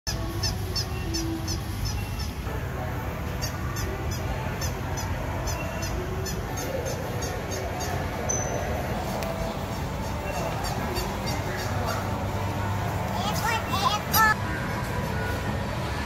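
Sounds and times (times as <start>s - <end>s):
squeaky sandals squeaking: 3.4s - 12.3s.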